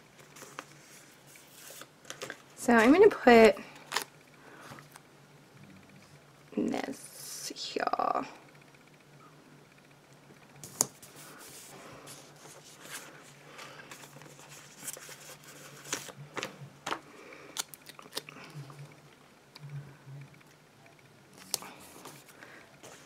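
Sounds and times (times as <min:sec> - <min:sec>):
paper crinkling and rustling: 0:00.2 - 0:03.1, 0:10.6 - 0:17.0.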